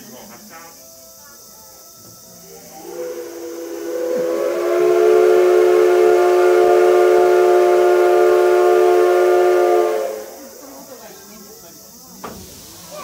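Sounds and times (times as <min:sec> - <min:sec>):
steam locomotive whistle blast: 0:02.4 - 0:10.6.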